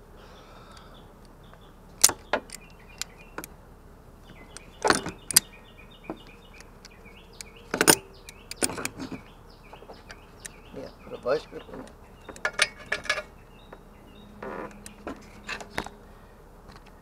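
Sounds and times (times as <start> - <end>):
tools knocking against metal: 4.8 - 5.5, 7.8 - 9.0.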